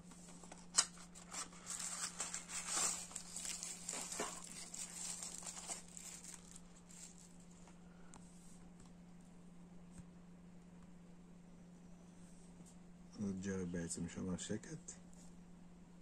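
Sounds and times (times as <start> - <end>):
steady low hum: 0.0 - 16.0
crinkling and rustling wrapper: 0.3 - 7.8.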